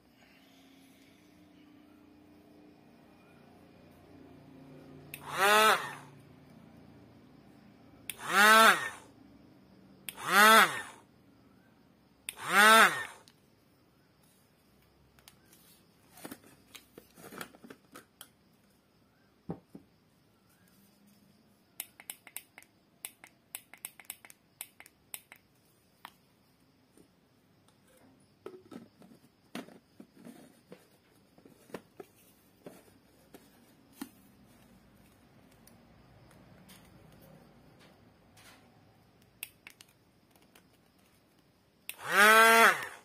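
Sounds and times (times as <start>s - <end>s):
plastic clicks and taps: 39.2s - 41.1s.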